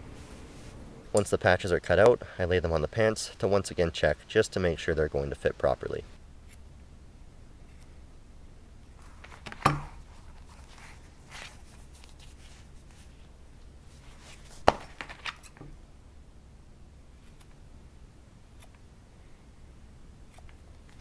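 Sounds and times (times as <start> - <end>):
soft rustling: 0.0 - 0.9, 8.9 - 15.8.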